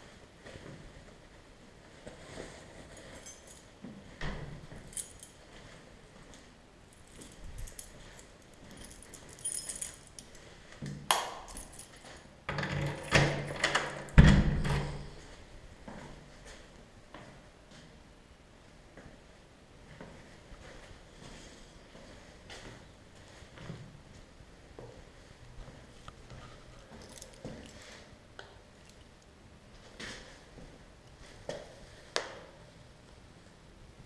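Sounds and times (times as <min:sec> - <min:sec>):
metallic jingles and clicks: 0:03.0 - 0:03.8, 0:04.8 - 0:05.5, 0:07.0 - 0:10.5, 0:11.3 - 0:12.3, 0:26.8 - 0:28.0.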